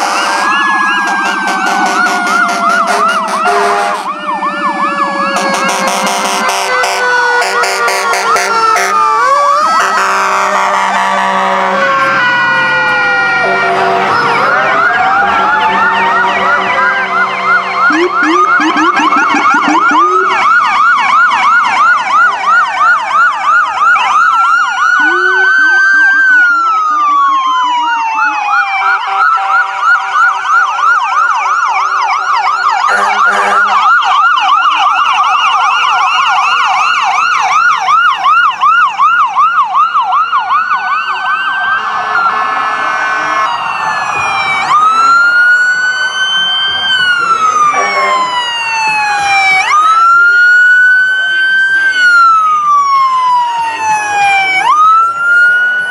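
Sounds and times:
steady horn: 0.0s - 4.1s, 5.4s - 9.0s, 9.8s - 12.1s, 13.4s - 14.3s, 32.8s - 33.8s, 47.6s - 48.4s
emergency vehicle sirens: 0.0s - 55.9s.

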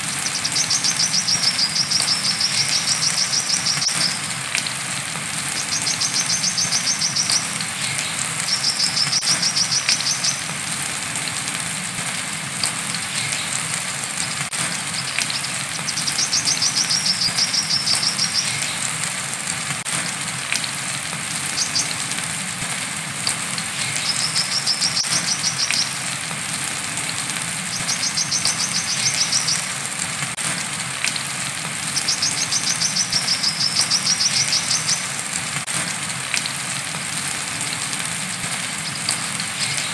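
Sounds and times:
steady rain hissing: 0.0s - 39.9s.

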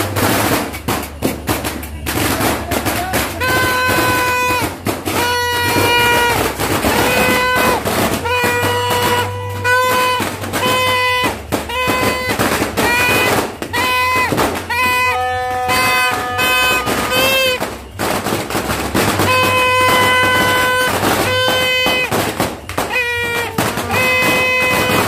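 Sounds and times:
firecrackers popping: 0.0s - 25.0s
noisemaker horns blasting: 2.0s - 25.0s.

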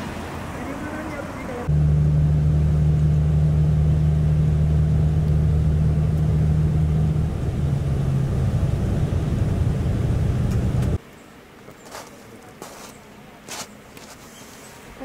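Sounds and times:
coach engine drone: 0.0s - 11.0s
road noise: 0.0s - 15.0s.

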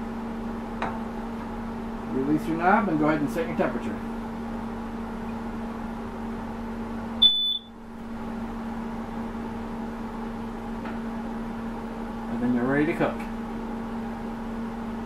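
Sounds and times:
steady low hum: 0.0s - 15.0s
short high electronic beep: 7.2s - 7.8s.

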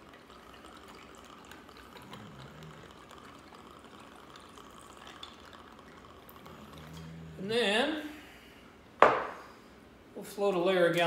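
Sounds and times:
juice pouring into a glass: 0.0s - 7.5s.

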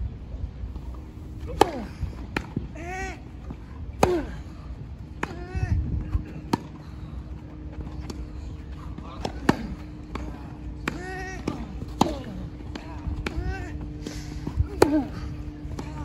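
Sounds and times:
racket striking tennis ball: 1.4s - 2.7s, 4.0s - 4.5s, 6.4s - 6.7s, 8.9s - 15.9s
players grunting: 1.4s - 3.4s, 4.0s - 7.2s, 8.6s - 16.0s.

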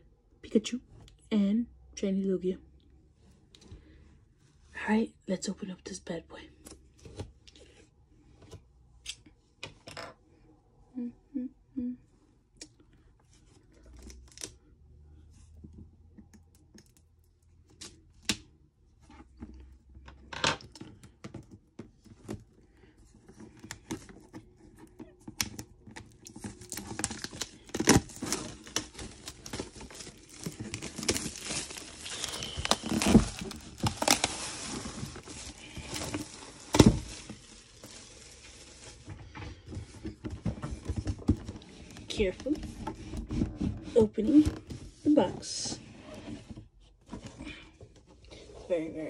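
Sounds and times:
plastic wrap crinkling: 24.9s - 39.2s.

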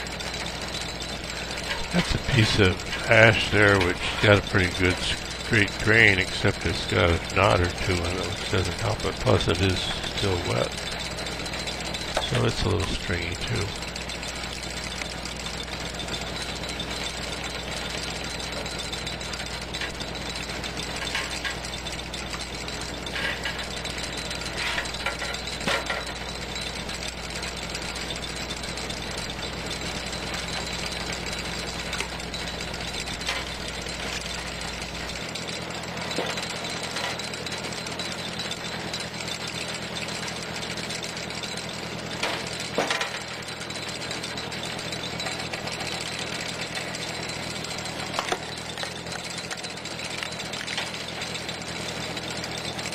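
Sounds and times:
tractor engine running: 0.0s - 52.9s.

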